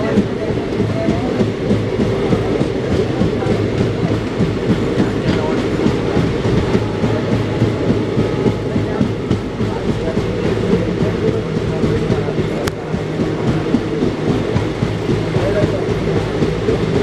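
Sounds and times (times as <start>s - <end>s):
train rumble: 0.0s - 17.0s
train wheels clattering on rails: 0.0s - 17.0s.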